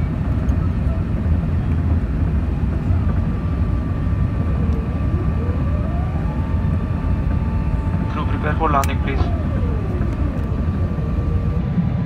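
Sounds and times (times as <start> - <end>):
airplane cabin roar: 0.0 - 12.0
faint steady whine: 0.0 - 12.0
whine rising in pitch: 3.3 - 12.0.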